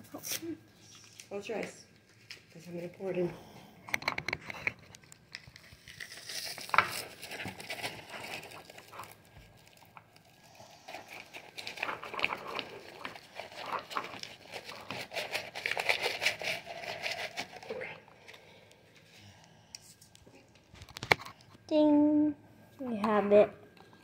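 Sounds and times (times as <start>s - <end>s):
plastic packaging crinkling: 4.6s - 18.0s.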